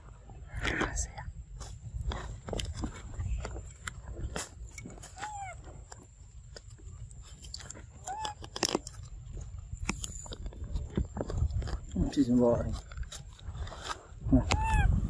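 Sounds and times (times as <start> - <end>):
monkeys chewing food: 1.9 - 15.0
monkey squeak: 5.1 - 5.6, 8.0 - 8.8, 14.4 - 15.0.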